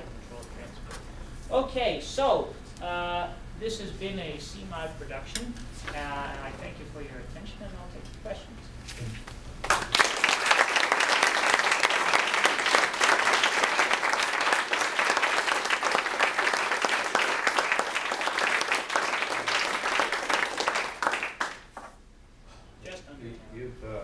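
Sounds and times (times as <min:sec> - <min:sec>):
audience applauding: 0:09.6 - 0:22.0.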